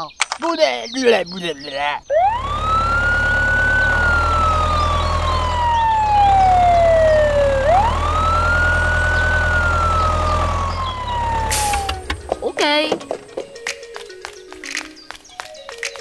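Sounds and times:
ambulance siren wailing: 2.1 - 12.4
low engine rumble: 2.1 - 13.6.

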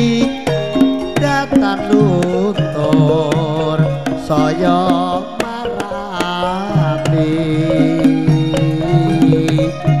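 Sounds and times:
song with hand-drum beats: 0.0 - 10.0.

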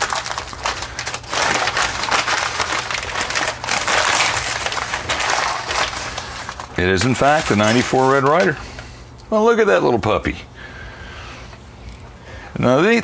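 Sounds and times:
packing material crinkling: 0.0 - 8.6.

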